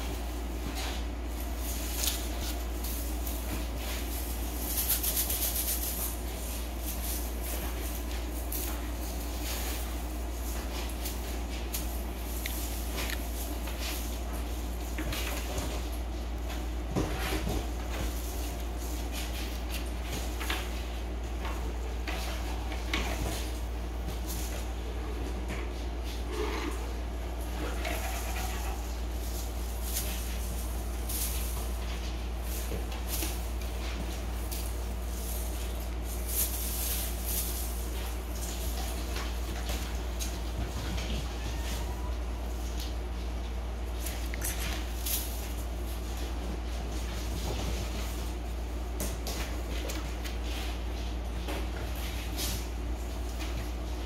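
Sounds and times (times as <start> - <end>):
soft rustles and scratches: 0.0 - 54.0
steady low hum: 0.0 - 54.0.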